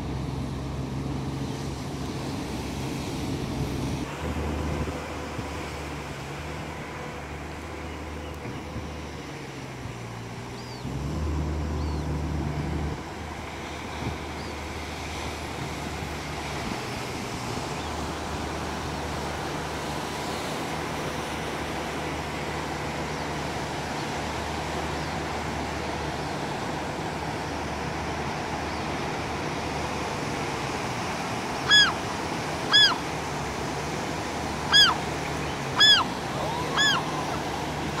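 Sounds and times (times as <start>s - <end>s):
waves breaking: 0.0s - 38.0s
gull calling: 31.5s - 33.2s, 34.5s - 38.0s.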